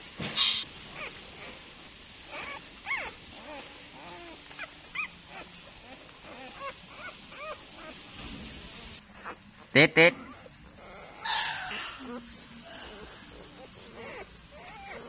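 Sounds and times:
puppies whimpering: 0.4s - 15.0s.

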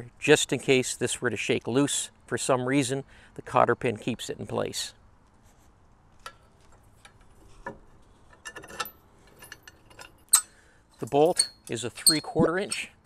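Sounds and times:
metallic clicks and clinks: 8.3s - 13.0s.

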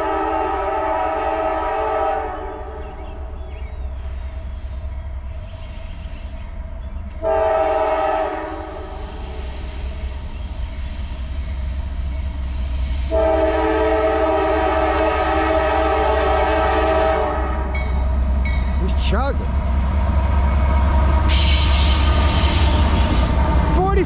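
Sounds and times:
locomotive air horn: 0.0s - 2.6s, 7.2s - 9.4s, 13.0s - 17.7s
train rumble: 0.0s - 24.0s.

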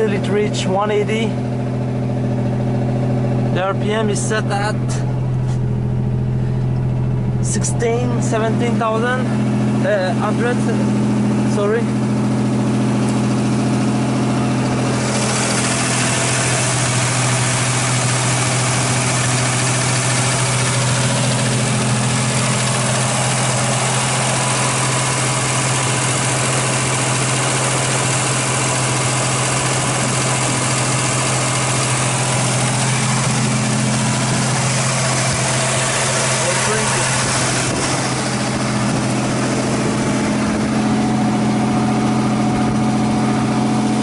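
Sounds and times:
car engine fast idle: 0.0s - 44.0s
engine hiss: 12.3s - 44.0s.

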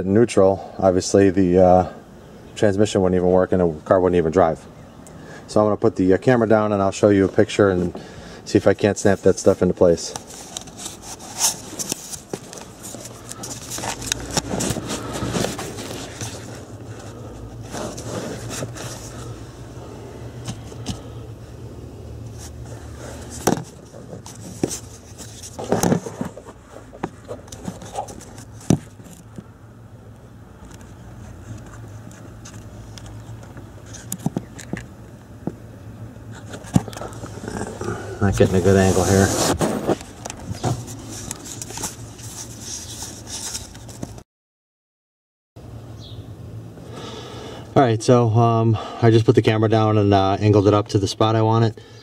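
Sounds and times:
low steady hum: 0.0s - 44.2s
camera handling scraping: 10.1s - 19.3s, 30.6s - 34.9s, 36.3s - 37.4s.

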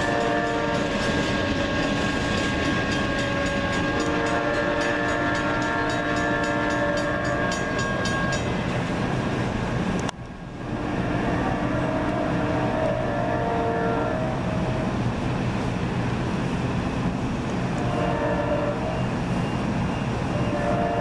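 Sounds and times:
locomotive air horn chord: 0.0s - 2.1s, 3.0s - 8.3s, 10.7s - 15.0s, 17.8s - 19.2s, 20.3s - 21.0s
train wheels clicking over rail joints: 0.0s - 10.3s.

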